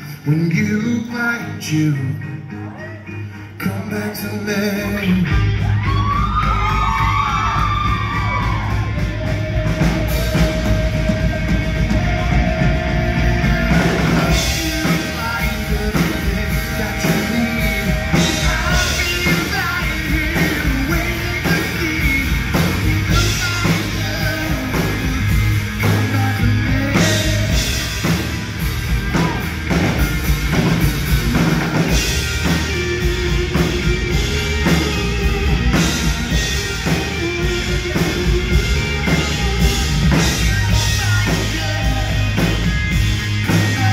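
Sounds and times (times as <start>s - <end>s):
man singing: 0.0s - 5.8s, 6.9s - 29.8s, 30.6s - 43.9s
drums: 0.0s - 43.9s
electric guitar: 0.0s - 43.9s.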